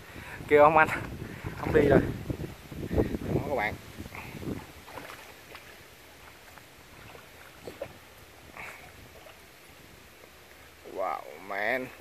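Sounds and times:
fish splashing in water: 4.1 - 10.8.

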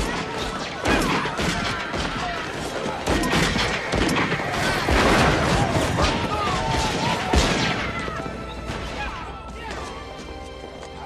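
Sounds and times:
gunshots: 0.0 - 8.3
people shouting in panic: 0.0 - 10.0
crashes: 0.8 - 8.0.

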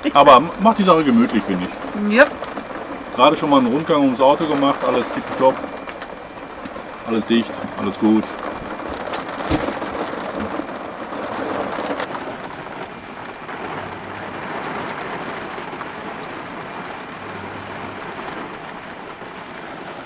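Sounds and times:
rain on a vehicle roof: 0.0 - 20.0.

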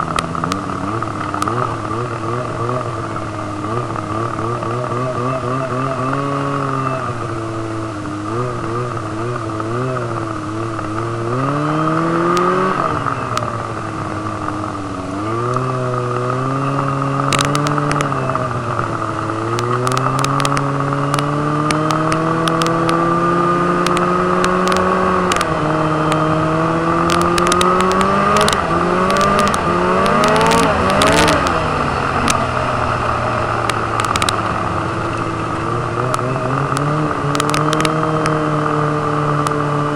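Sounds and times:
sharp clicks and ticks: 0.0 - 7.5, 8.4 - 14.6, 15.4 - 23.1, 23.7 - 39.9
snowmobile engine revving: 0.0 - 39.9.

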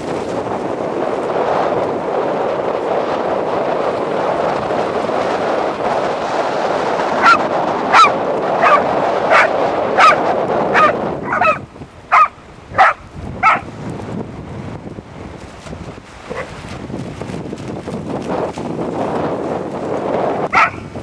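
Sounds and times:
wind rushing: 0.0 - 21.0
water splashing: 3.8 - 14.1, 14.8 - 21.0
dog barking: 7.2 - 13.7, 16.3 - 16.5, 20.5 - 20.8.

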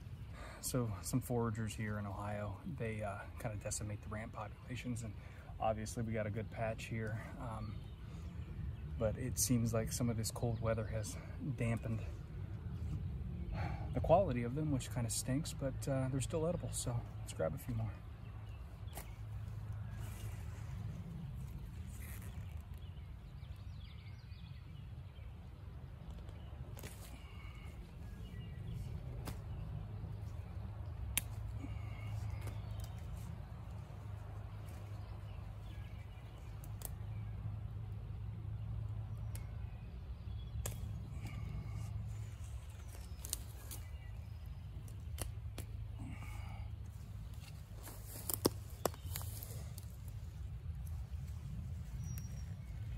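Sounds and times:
birdsong chirping: 0.0 - 52.9
leaves snapping: 18.8 - 23.4, 26.0 - 37.2, 40.4 - 46.5, 47.2 - 51.2.

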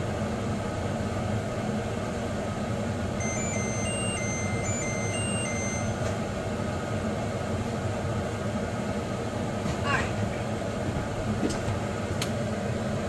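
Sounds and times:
steady whirring hum: 0.0 - 13.0
electronic tune of high beeps: 3.2 - 6.1.

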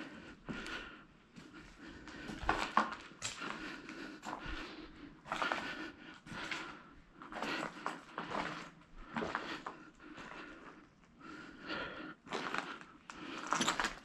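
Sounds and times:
footsteps crunching over debris: 2.1 - 10.5, 12.3 - 14.0.

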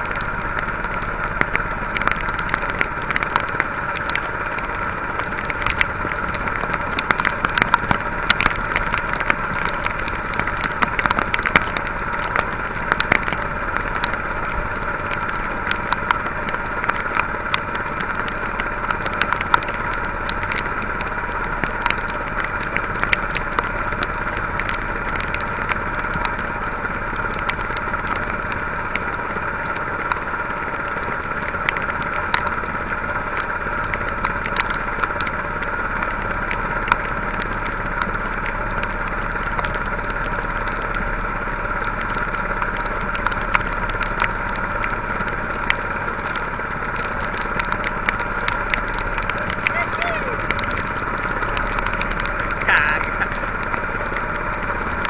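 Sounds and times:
heavy rain ticking: 0.0 - 55.0
small boat motor running: 0.0 - 55.0.

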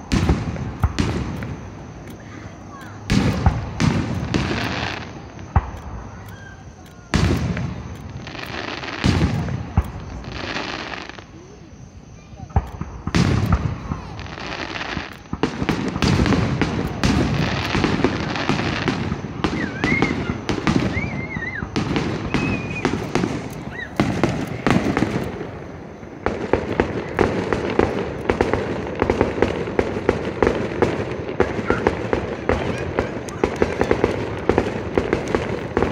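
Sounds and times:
firework whistles: 0.0 - 35.9
fireworks bangs and crackles: 0.0 - 35.9.

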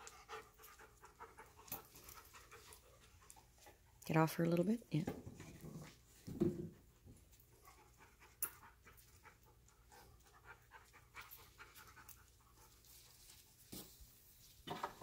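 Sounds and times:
dog panting and sniffing: 0.0 - 4.1, 6.8 - 13.6.

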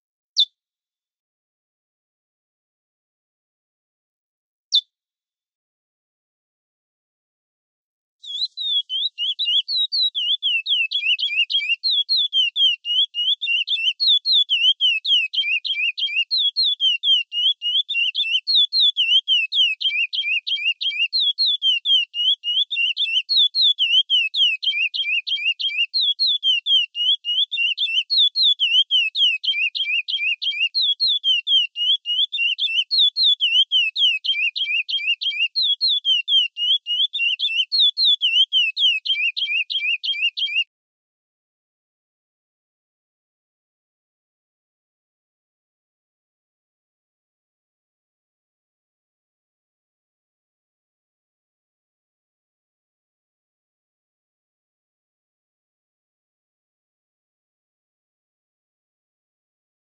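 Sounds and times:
finch singing whistled notes: 8.2 - 40.7.

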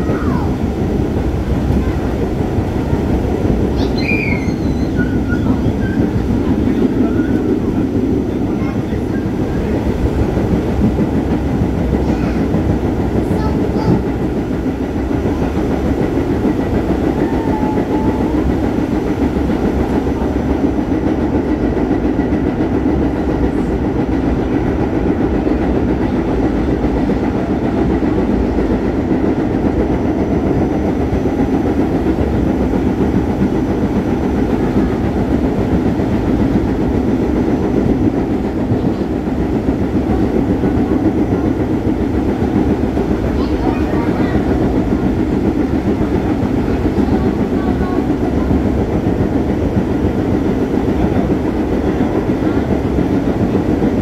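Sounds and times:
subway wheels on rails: 0.0 - 54.0.

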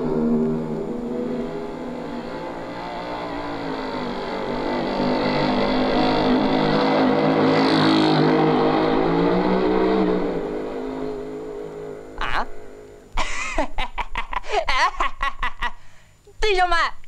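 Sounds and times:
small vehicle motor humming: 0.0 - 13.2.

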